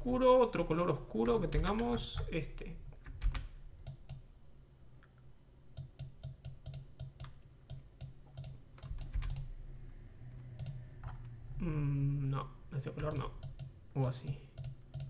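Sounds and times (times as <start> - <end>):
low steady hum: 0.0 - 15.0
mouse and keyboard clicks: 13.0 - 15.0.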